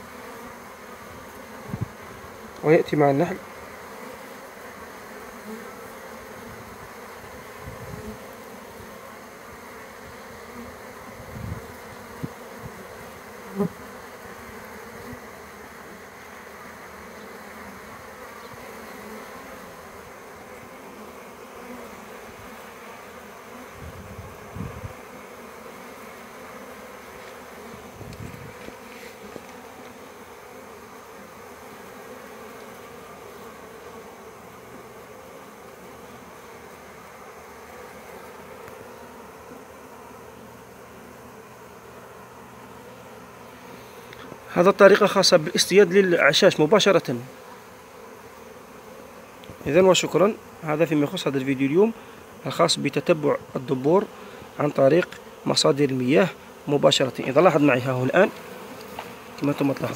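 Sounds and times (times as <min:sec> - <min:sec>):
bees and wasps buzzing: 0:00.0 - 0:59.9.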